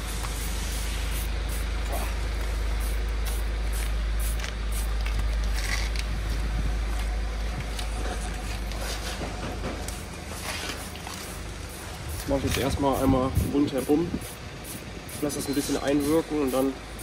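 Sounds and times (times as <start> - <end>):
spray bottle hissing spritzes: 0.0 - 2.2
steady low rumble: 0.0 - 17.0.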